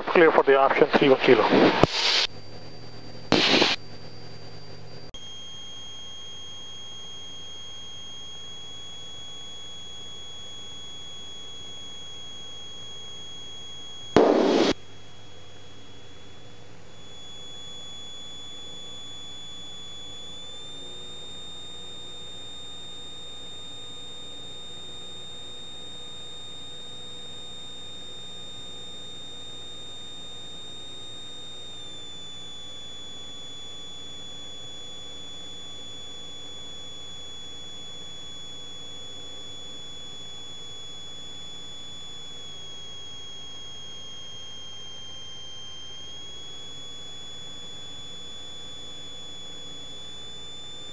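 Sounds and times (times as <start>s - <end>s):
high-pitched alternator whine: 0.0s - 50.9s.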